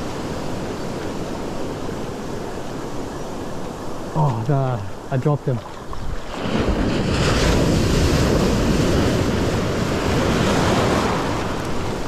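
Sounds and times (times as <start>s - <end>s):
surf washing over sand: 0.0s - 12.0s
wind buffeting microphone: 0.0s - 12.0s.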